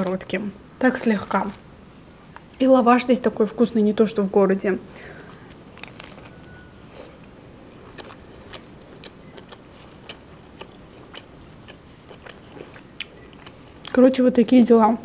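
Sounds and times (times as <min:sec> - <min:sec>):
biting into flatbread wrap: 0:04.9 - 0:06.6
close-up chewing: 0:04.9 - 0:14.0.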